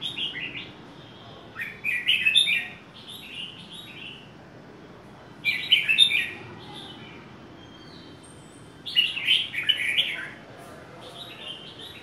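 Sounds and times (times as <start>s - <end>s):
bird warbling song: 1.5s - 4.3s, 5.4s - 10.4s.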